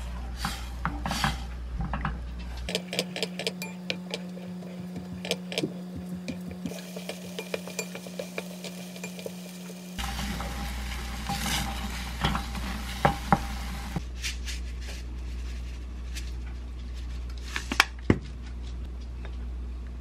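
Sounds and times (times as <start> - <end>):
sizzling bubbling hiss: 5.0 - 14.0
spatula stirring porridge: 6.3 - 13.4.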